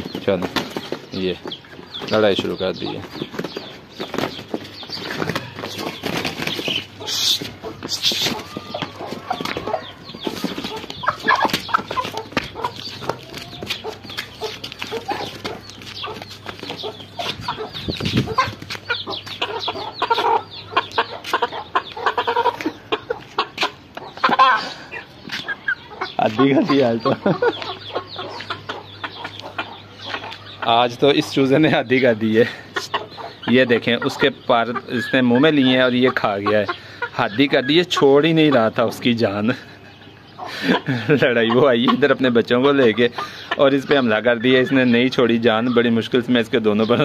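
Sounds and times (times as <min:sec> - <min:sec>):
wing flapping and scuffling: 0:00.0 - 0:24.4
chickens clucking and squawking: 0:00.0 - 0:47.0.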